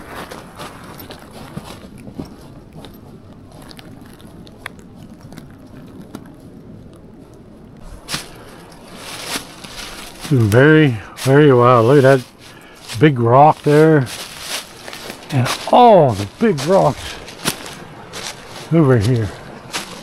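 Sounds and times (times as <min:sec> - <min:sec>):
footsteps on rocky trail: 0:00.0 - 0:20.0.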